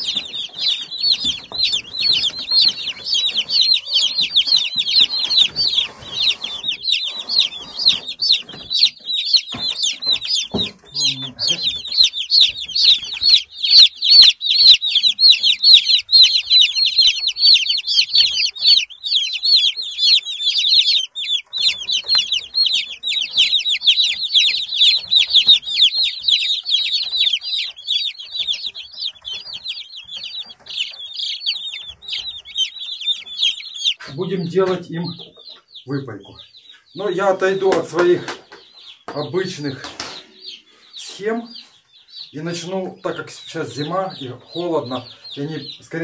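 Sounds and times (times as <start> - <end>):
chicks peeping: 0.0 - 46.0.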